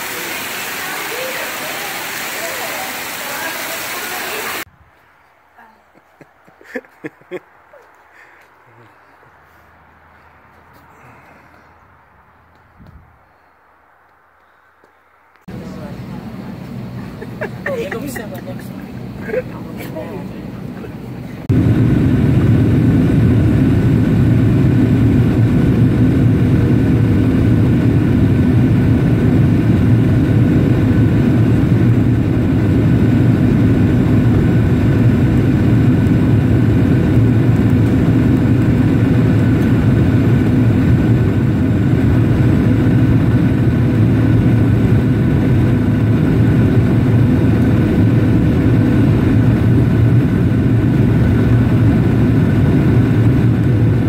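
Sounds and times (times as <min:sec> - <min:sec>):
jet engine and airflow roar: 0:00.0 - 0:04.7, 0:15.4 - 0:54.0
faint steady whine: 0:13.2 - 0:54.0.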